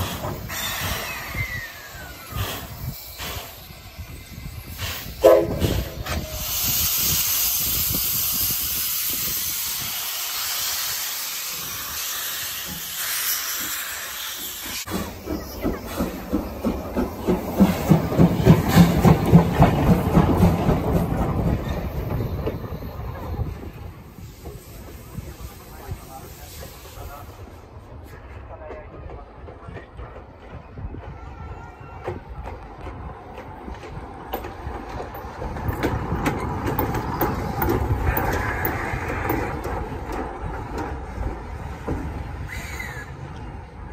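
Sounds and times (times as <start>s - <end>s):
train rumbling on rails: 0.0s - 43.9s
high squeal: 0.5s - 4.8s
steam train rhythmic beat: 14.4s - 21.5s
wheels clicking over track: 32.4s - 42.1s.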